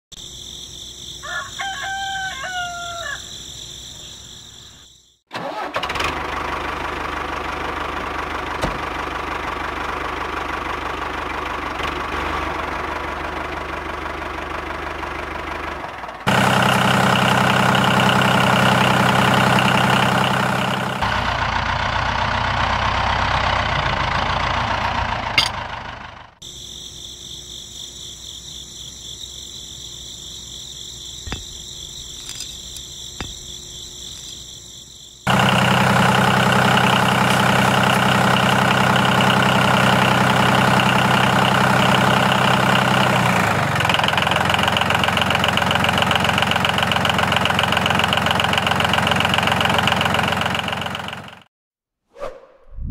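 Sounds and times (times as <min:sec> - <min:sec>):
insects chirping: 0:00.1 - 0:05.3, 0:26.4 - 0:43.1
rooster crowing: 0:01.1 - 0:04.2
engine running: 0:05.3 - 0:26.4, 0:35.3 - 0:51.5.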